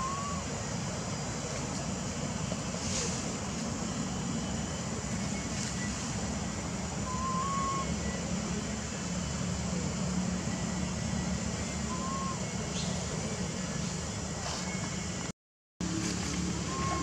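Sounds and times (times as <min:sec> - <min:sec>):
faint whistle-like calls: 0:00.0 - 0:00.6, 0:07.0 - 0:08.6, 0:10.5 - 0:13.0, 0:16.6 - 0:17.0.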